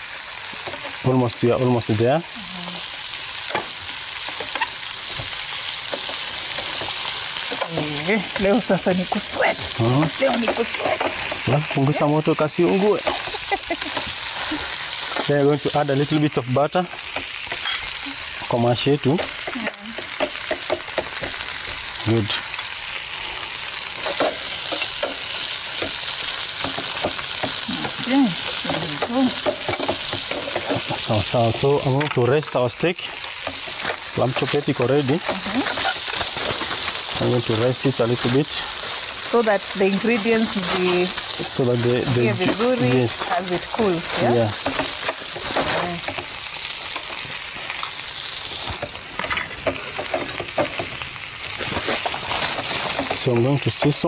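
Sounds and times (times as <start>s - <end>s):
meat sizzling in frying pan: 0.0s - 54.0s
utensils scraping pans: 17.0s - 21.5s, 23.9s - 32.6s, 40.0s - 47.4s
fork scraping in a pan: 17.4s - 21.5s, 23.9s - 31.1s, 33.2s - 37.0s.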